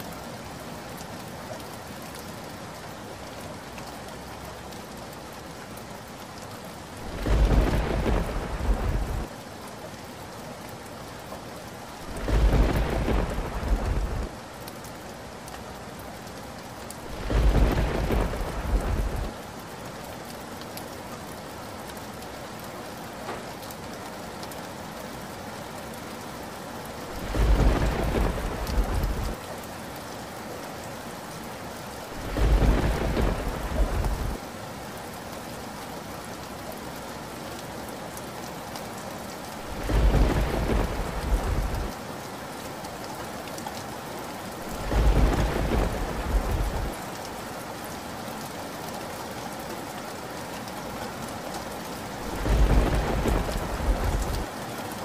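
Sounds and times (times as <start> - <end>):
steady rain falling: 0.0 - 55.0
thunder claps: 7.1 - 9.3, 12.2 - 14.3, 17.1 - 19.3, 27.2 - 29.4, 32.2 - 34.4, 39.7 - 41.9, 44.7 - 47.0, 52.3 - 54.5.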